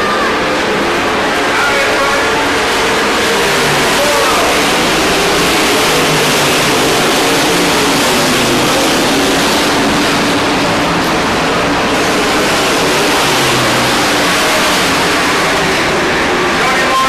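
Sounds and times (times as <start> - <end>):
racing truck engines: 0.0 - 17.0.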